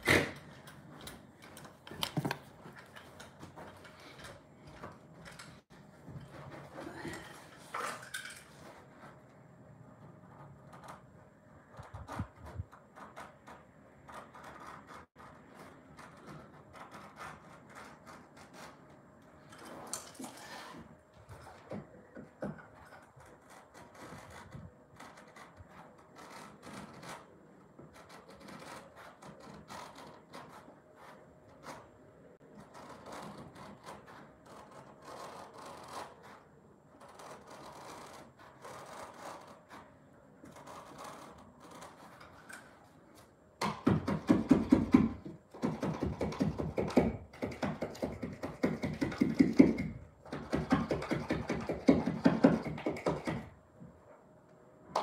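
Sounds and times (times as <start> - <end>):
scratching and rubbing carpet: 22.7 - 42.5.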